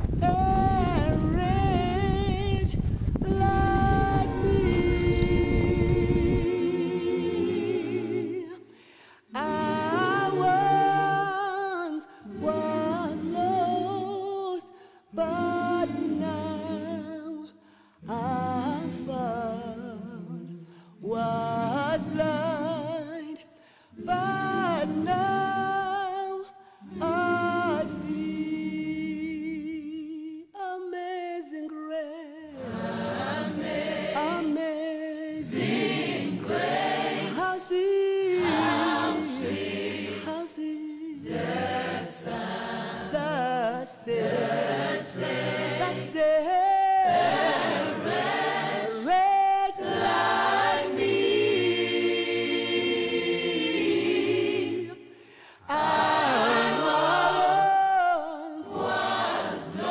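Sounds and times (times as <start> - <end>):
voices singing a hymn a cappella: 0.0 - 59.9.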